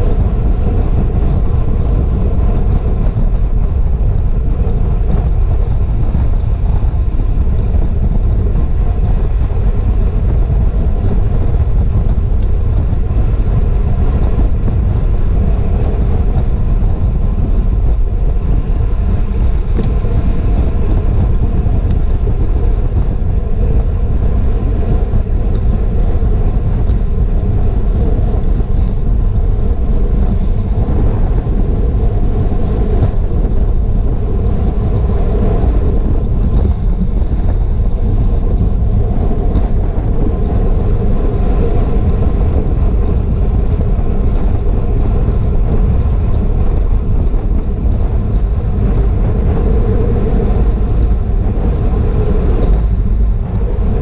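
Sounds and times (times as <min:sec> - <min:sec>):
wind buffeting microphone: 0:00.0 - 0:54.0
faint ticks: 0:52.6 - 0:53.8.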